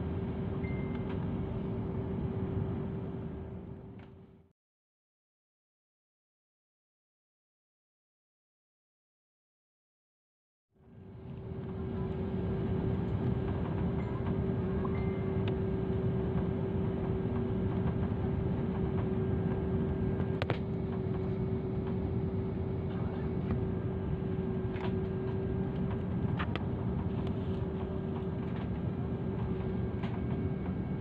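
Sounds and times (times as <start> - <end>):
hum-like tone: 0.0 - 4.3, 10.8 - 31.0
jet engine and airflow drone: 0.0 - 4.5, 10.8 - 31.0.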